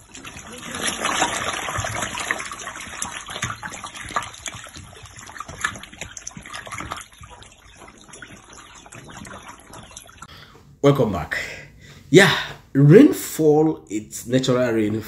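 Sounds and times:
catfish thrashing and splashing: 0.0 - 10.3.

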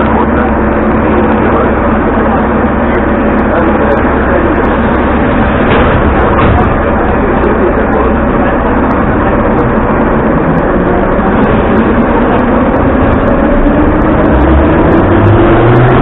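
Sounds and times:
train rumbling: 0.0 - 16.0
train motor whine rising in pitch: 7.2 - 16.0.

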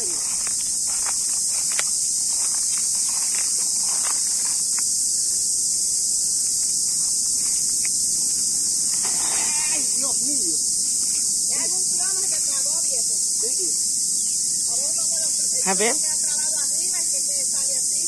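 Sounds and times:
insects droning shrilly: 0.0 - 18.0.

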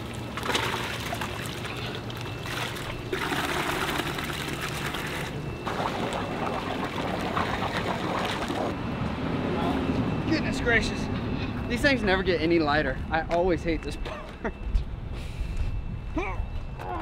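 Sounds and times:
aerated tanks bubbling: 0.0 - 8.8
water splashing and pouring: 0.0 - 8.8.

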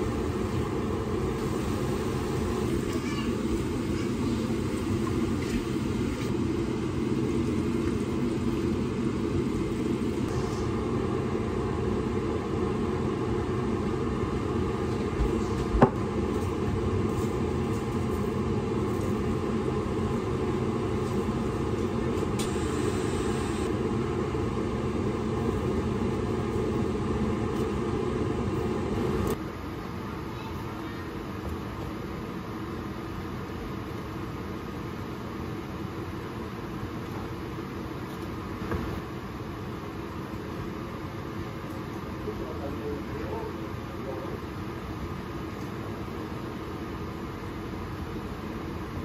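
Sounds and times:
kitchen fan humming: 0.0 - 31.1.

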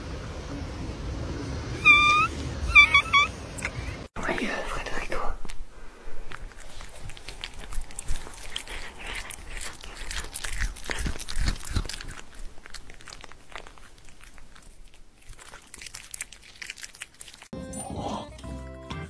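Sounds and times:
cats chewing meat: 5.7 - 17.6.

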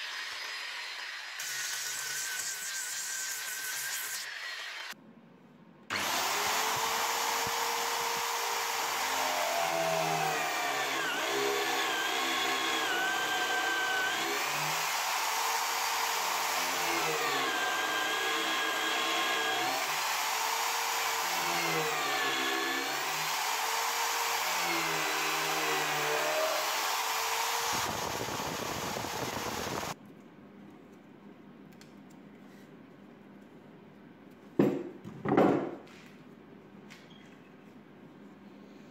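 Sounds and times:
electric drill boring wood: 0.0 - 5.0, 5.9 - 30.0.

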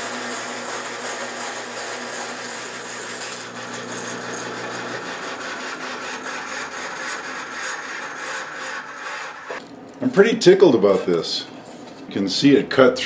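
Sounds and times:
bandsaw cutting through wood: 0.0 - 9.6.

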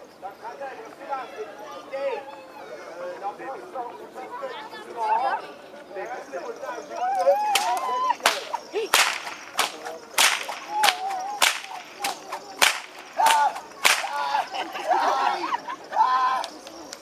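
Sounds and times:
whip cracking: 7.4 - 14.7.

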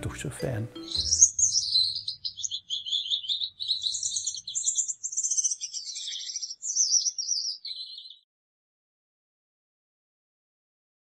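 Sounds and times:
finches chirping: 0.4 - 8.2.

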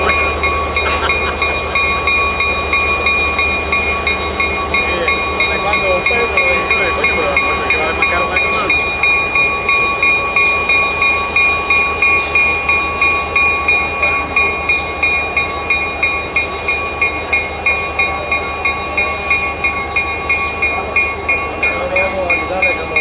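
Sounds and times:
diesel locomotive running: 0.0 - 23.0
steady high whine: 0.0 - 23.0.

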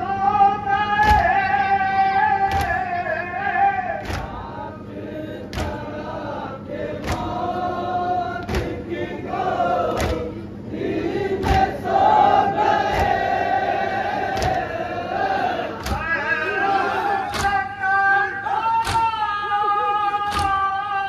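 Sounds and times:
man chanting a lament: 0.0 - 5.8, 15.6 - 21.0
group singing along: 0.0 - 21.0
chest-beating slaps: 4.0 - 4.4, 5.5 - 5.8, 7.0 - 7.4, 9.9 - 10.3, 14.3 - 14.7, 15.8 - 16.1, 17.3 - 17.6, 18.8 - 19.2, 20.3 - 20.6.

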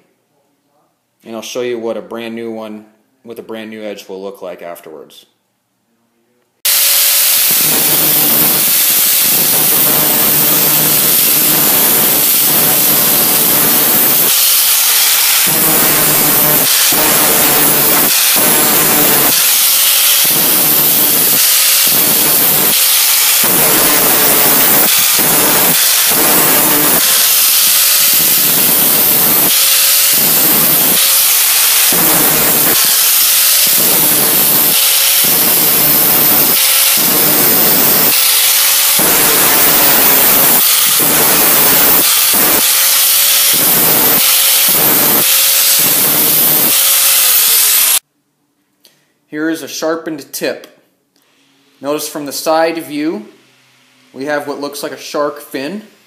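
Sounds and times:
angle grinder grinding metal: 6.7 - 48.0.

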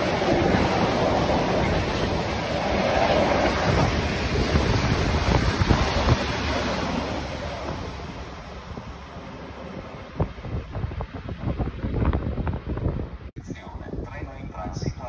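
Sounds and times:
freight train wheels rumbling on rail: 0.0 - 15.0
wind on microphone: 0.0 - 15.0.

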